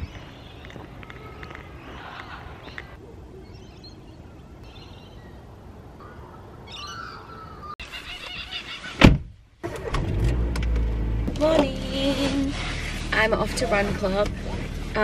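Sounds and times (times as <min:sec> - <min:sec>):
birds chirping: 0:00.0 - 0:09.0
outdoor background noise: 0:00.0 - 0:15.0.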